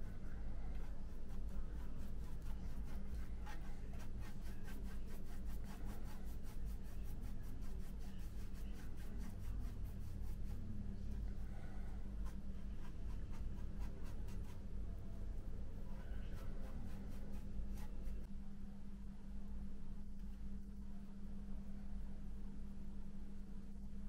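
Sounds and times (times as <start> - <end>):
paintbrush scratching and dabbing: 0.0 - 18.3
steady low hum: 0.0 - 24.0.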